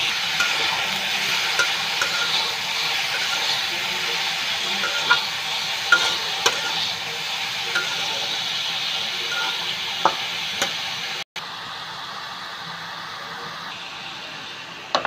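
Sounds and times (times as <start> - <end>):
metal spatula scraping a wok: 0.0 - 10.8
food sizzling in hot oil: 0.0 - 15.0.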